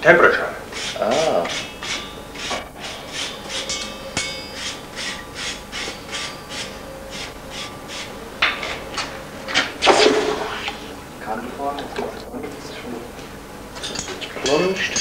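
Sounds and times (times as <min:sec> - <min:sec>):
file rasping on metal: 0:00.7 - 0:08.2.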